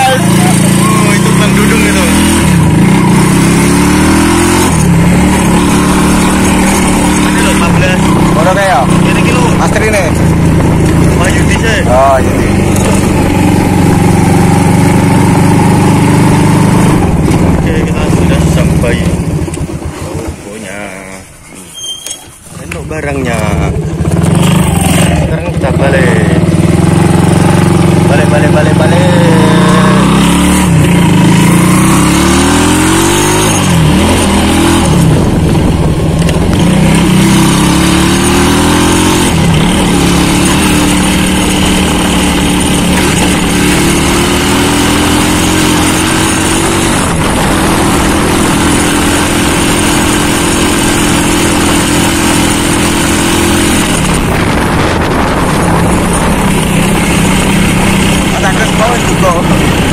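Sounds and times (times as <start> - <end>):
motorcycle engine accelerating: 0.0 - 21.9, 22.5 - 59.9
wind on microphone: 33.7 - 37.7, 46.3 - 58.4.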